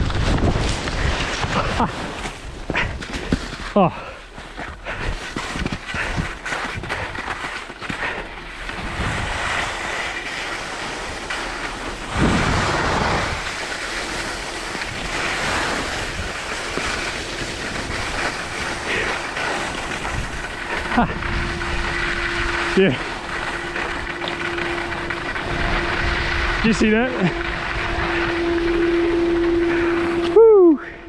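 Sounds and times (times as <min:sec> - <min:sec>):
wind rushing over microphone: 0:00.0 - 0:01.9, 0:08.7 - 0:10.2, 0:11.1 - 0:19.1, 0:19.8 - 0:31.0
skis scraping over snow: 0:00.0 - 0:31.0.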